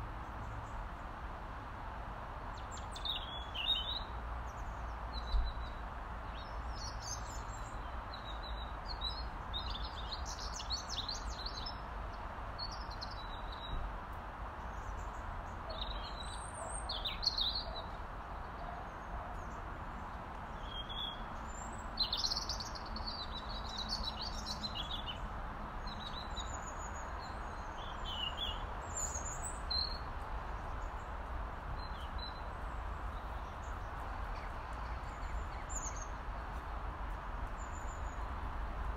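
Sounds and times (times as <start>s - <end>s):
robin calling: 20.5s - 25.2s.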